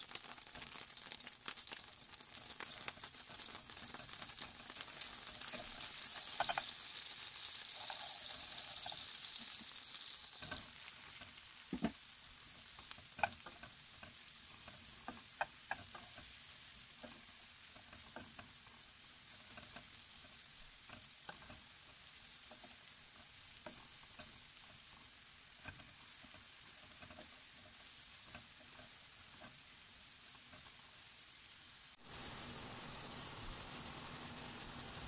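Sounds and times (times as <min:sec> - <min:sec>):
mushrooms sizzling in a pan: 0:00.0 - 0:35.0
wooden spoon knocking on pan: 0:06.3 - 0:06.7, 0:11.7 - 0:12.0, 0:14.6 - 0:16.2.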